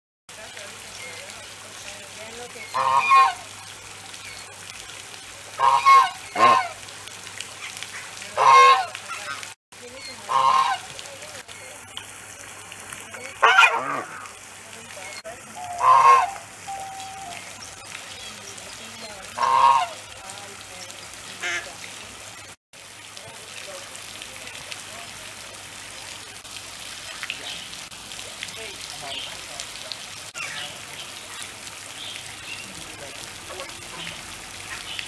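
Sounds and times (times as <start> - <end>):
goose honking: 2.7 - 3.5, 5.6 - 6.8, 8.4 - 9.4, 10.3 - 10.9, 13.4 - 14.3, 15.6 - 17.4, 19.4 - 20.0.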